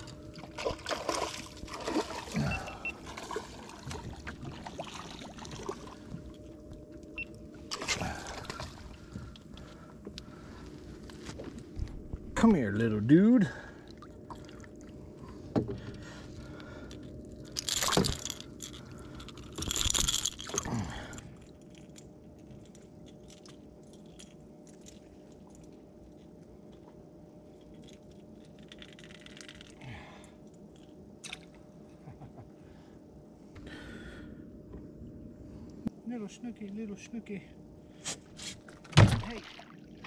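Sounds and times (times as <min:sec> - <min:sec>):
fish splashing and thrashing: 0:00.0 - 0:06.4, 0:07.7 - 0:09.7.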